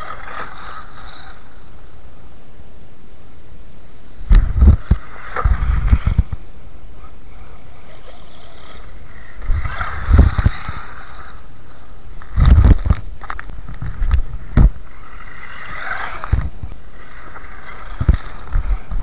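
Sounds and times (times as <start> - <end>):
steady hiss: 0.0 - 19.0
wind buffeting microphone: 4.2 - 6.6, 7.6 - 19.0.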